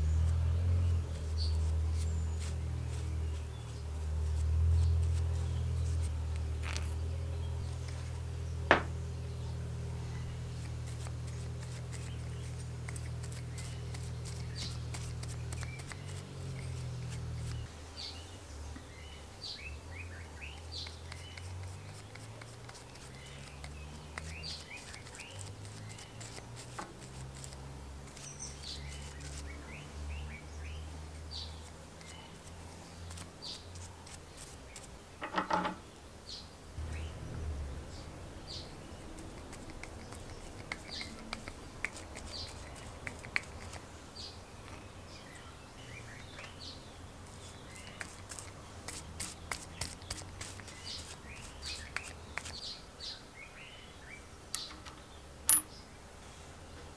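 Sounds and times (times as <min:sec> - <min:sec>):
birds chirping: 0:00.0 - 0:56.0
soft brushing: 0:00.1 - 0:08.9, 0:10.2 - 0:17.7, 0:20.5 - 0:29.6, 0:31.0 - 0:35.0, 0:47.2 - 0:52.6
low uneven rumble: 0:36.8 - 0:39.5.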